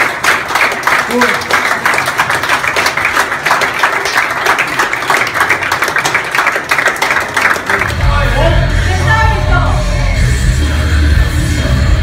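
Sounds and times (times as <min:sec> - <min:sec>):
people clapping: 0:00.0 - 0:08.5.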